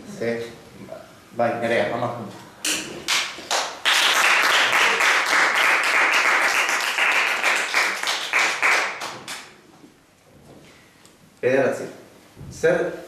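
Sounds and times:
crowd applause: 3.5 - 9.4.

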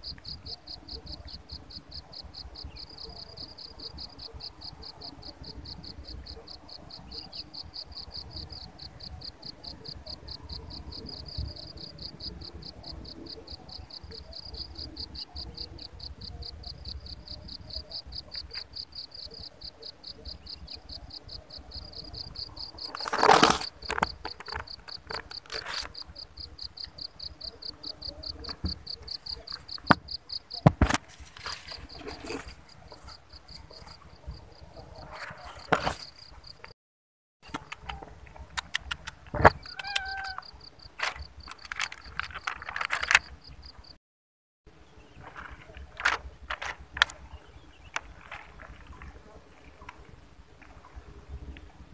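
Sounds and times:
insects trilling: 39.4 - 43.9.

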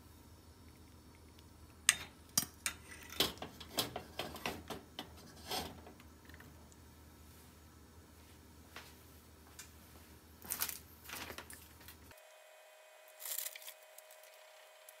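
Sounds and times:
faint crackles and pops in a saucepan: 0.4 - 6.9, 13.1 - 15.0.

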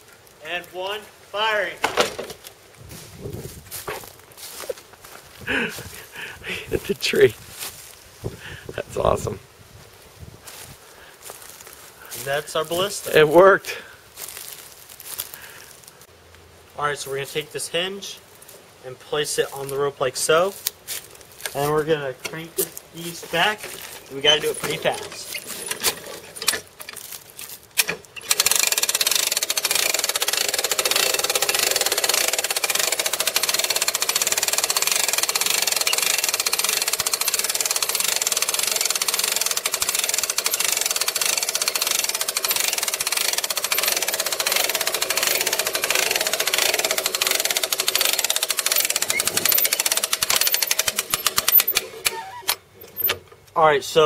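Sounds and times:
ratchet winch clicking rapidly: 28.1 - 52.2.

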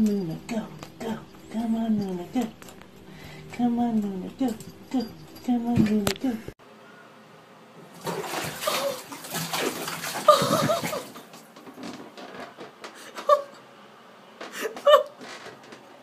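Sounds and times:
water splashing in bathtub: 7.8 - 11.6.

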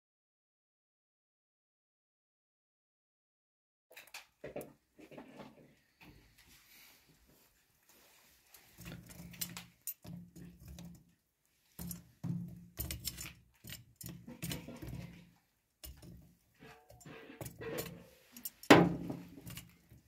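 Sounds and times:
metal tongs clinking and scraping: 12.8 - 20.0.

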